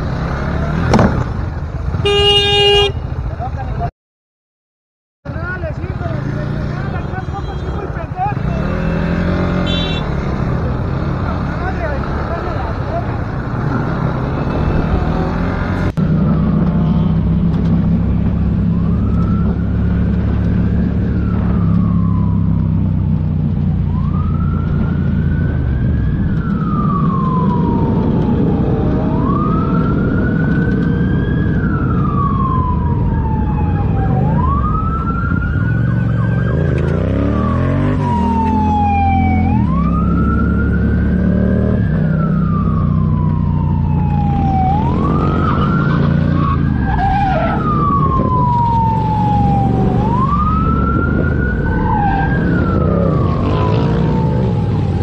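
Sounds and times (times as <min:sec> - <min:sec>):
wind: 0:00.0 - 0:03.9, 0:05.2 - 0:55.0
motorcycle engine: 0:05.3 - 0:55.0
police siren wailing: 0:14.0 - 0:17.2, 0:17.9 - 0:55.0.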